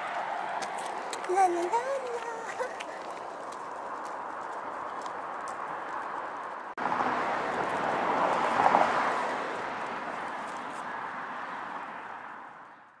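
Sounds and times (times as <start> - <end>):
car passing by: 2.8 - 12.8.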